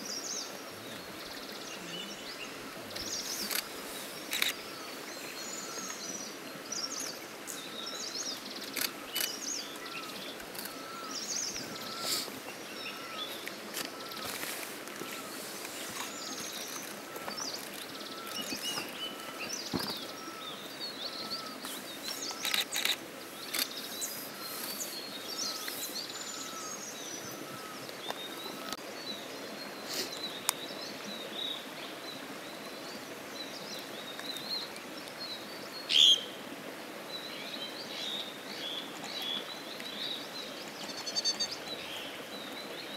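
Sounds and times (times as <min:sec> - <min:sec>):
wild birds calling and chirping: 0:00.0 - 0:28.8
steady background hiss: 0:00.0 - 0:42.9.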